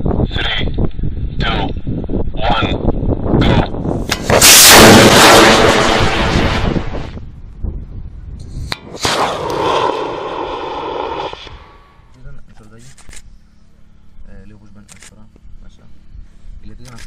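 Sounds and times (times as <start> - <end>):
rocket motor exhaust blast: 3.4 - 7.3, 8.4 - 12.1
sharp crack: 4.1 - 7.2, 8.7 - 11.8.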